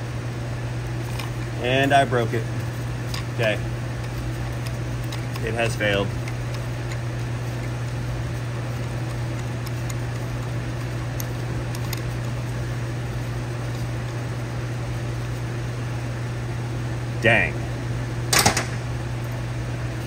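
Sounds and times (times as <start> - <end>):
low machine hum: 0.0 - 20.0.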